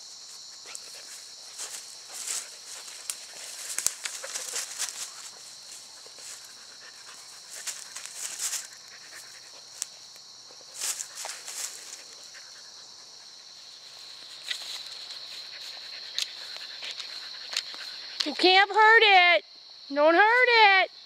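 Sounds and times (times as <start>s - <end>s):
paws rustling dry leaves: 0.0s - 10.1s, 10.7s - 12.7s
insects droning: 0.0s - 21.0s.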